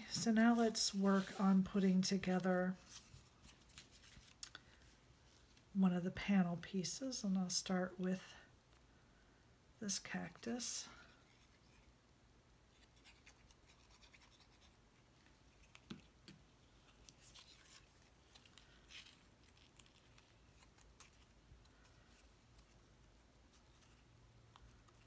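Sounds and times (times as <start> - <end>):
paper scratching and rustling: 16.7 - 25.0.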